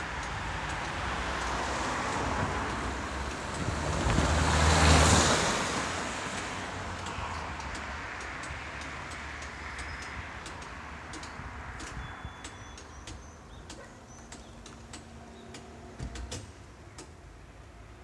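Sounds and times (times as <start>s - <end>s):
road traffic noise: 0.0s - 18.0s
sharp clicks: 6.4s - 17.2s
small birds chirping: 9.4s - 16.0s.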